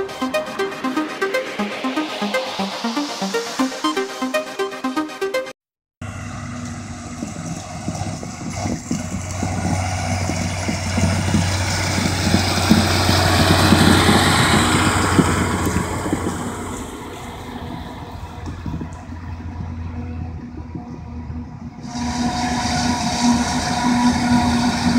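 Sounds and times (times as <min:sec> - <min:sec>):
trailer rattle: 0:06.0 - 0:20.7
tractor engine hum: 0:06.0 - 0:24.9.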